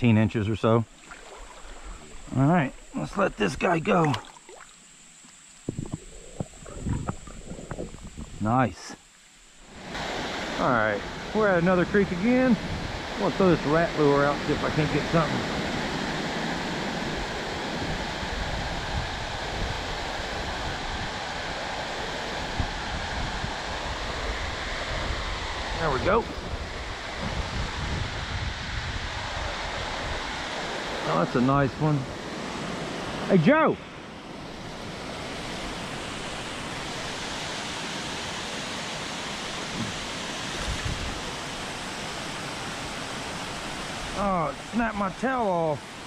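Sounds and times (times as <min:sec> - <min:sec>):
creek water rushing: 0:00.0 - 0:46.0.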